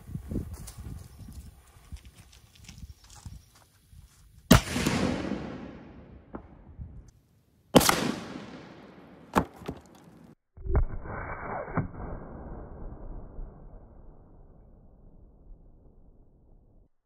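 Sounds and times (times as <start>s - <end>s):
sharp crack: 4.5s - 6.5s, 7.8s - 11.0s
cannon boom with echo: 4.5s - 6.8s.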